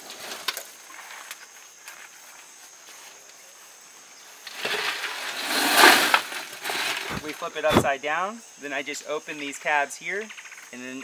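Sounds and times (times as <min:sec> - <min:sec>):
faint high insect hum: 0:00.0 - 0:11.0.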